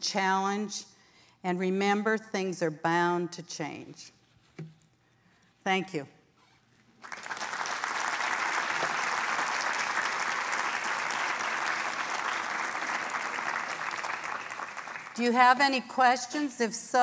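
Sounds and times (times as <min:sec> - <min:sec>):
audience applauding: 0:07.0 - 0:15.2.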